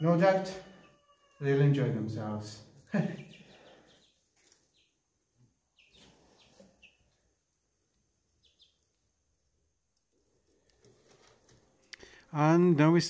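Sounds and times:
chicks peeping: 2.4 - 7.4, 8.0 - 9.1.

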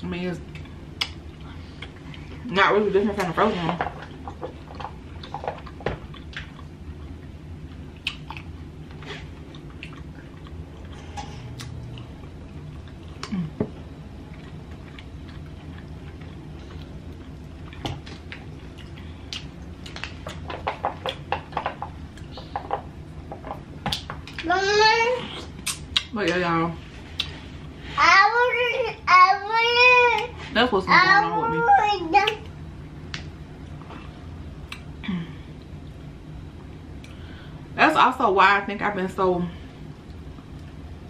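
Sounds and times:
chewing and wet mouth smacks: 8.0 - 13.4, 14.2 - 20.4, 25.3 - 26.1, 33.1 - 34.9.

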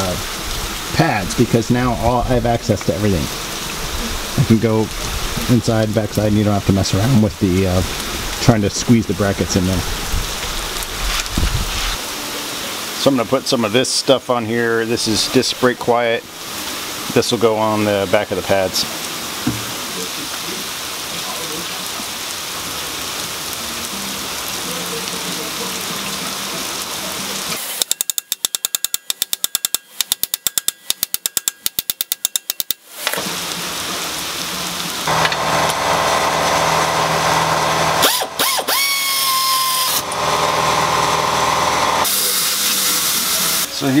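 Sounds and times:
ratchet wrench clicking: 27.6 - 32.8
steady hiss: 42.0 - 44.0.

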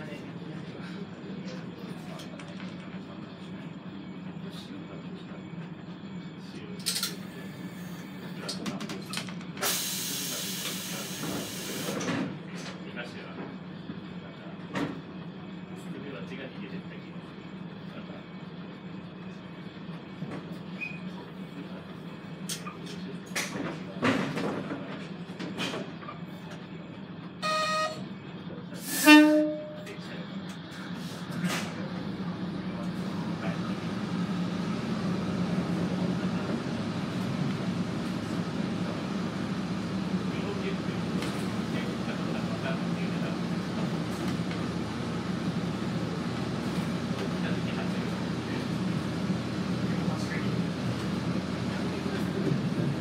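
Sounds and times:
diesel railcar engine drone: 0.0 - 53.0
diesel engine idling: 27.0 - 53.0
short clear tone: 27.4 - 28.1, 28.8 - 30.0.

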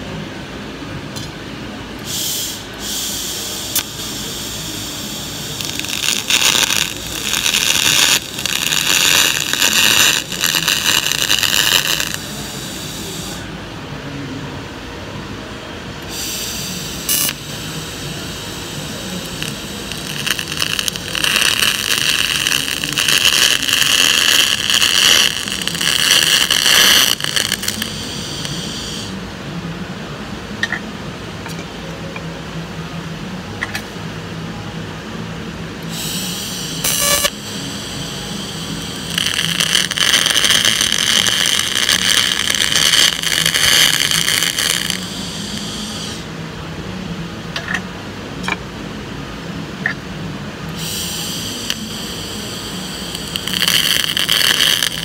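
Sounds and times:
quiet steady hum: 0.0 - 55.0
welding arc hissing buzz: 2.0 - 13.5, 16.0 - 29.2, 35.8 - 46.4, 50.7 - 55.0.

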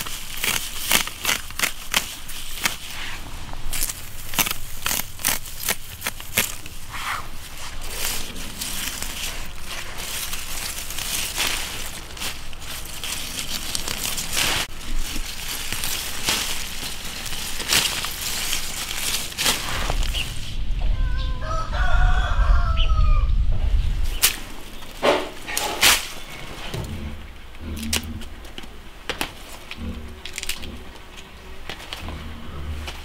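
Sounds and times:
stems snapping: 0.0 - 3.0, 3.7 - 6.8, 7.6 - 20.4, 24.1 - 26.9, 27.6 - 32.3
leaves rustling: 0.0 - 33.0
low rumble: 3.2 - 24.6
rooster crowing: 20.9 - 23.4.

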